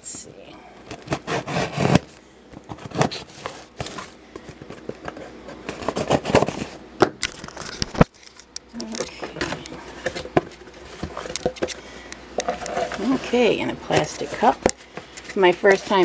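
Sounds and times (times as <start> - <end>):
knife cutting cardboard box: 1.1 - 2.1, 5.7 - 6.7.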